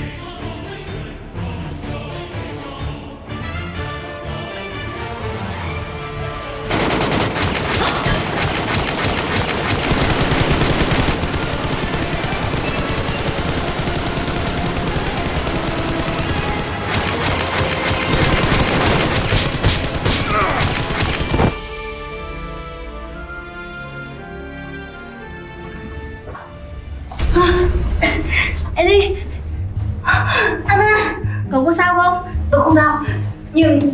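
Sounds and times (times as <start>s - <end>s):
automatic gunfire: 6.7s - 21.6s
faint music: 24.9s - 33.9s.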